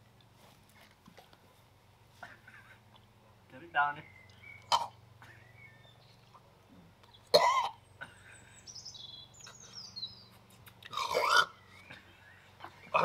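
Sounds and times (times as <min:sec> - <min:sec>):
man coughing and gagging: 0:07.4 - 0:07.8.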